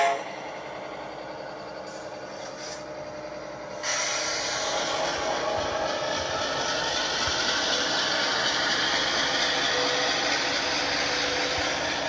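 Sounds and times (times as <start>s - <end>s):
model train whirring: 3.7s - 12.0s.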